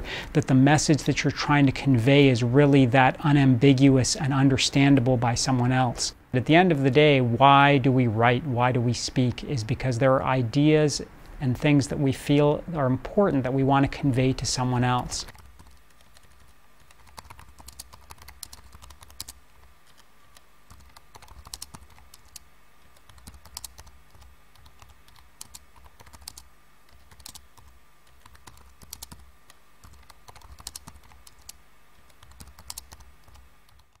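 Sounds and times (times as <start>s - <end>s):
typing on computer keyboard: 15.3s - 34.0s.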